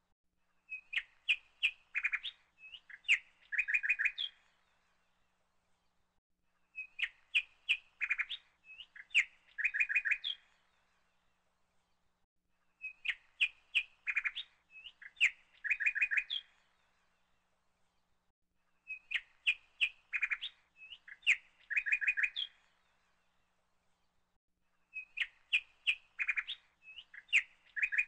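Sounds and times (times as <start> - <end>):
birds chirping and whistling: 0.7 - 4.4, 6.8 - 10.4, 12.8 - 16.5, 18.9 - 22.6, 25.0 - 28.0.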